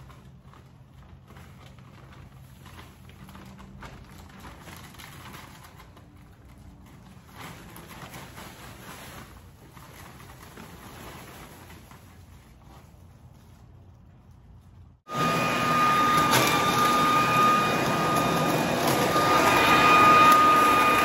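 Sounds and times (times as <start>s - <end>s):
dry leaves rustling and crackling: 0.0s - 13.6s.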